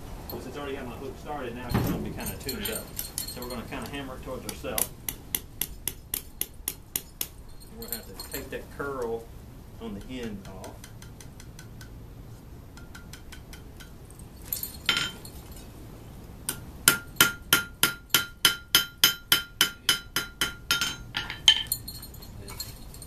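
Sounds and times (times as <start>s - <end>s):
hammer striking iron on anvil: 4.4s - 7.4s, 9.9s - 12.0s, 12.7s - 14.0s, 14.9s - 15.2s, 16.5s - 21.8s
anvil ringing: 14.7s - 15.3s, 16.9s - 22.1s.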